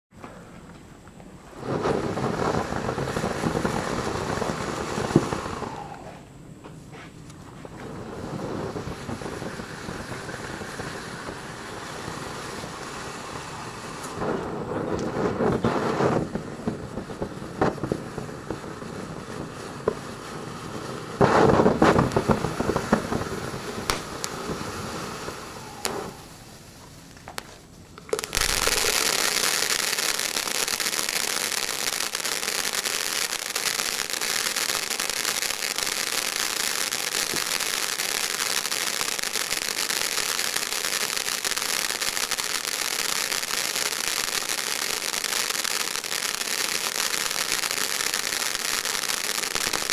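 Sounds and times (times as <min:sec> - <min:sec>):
hissing shower of crackling sparks: 0:01.3 - 0:49.9
firework fountain spraying sparks: 0:01.4 - 0:06.3, 0:07.2 - 0:49.9
scattered pops: 0:21.2 - 0:24.6, 0:27.0 - 0:49.9.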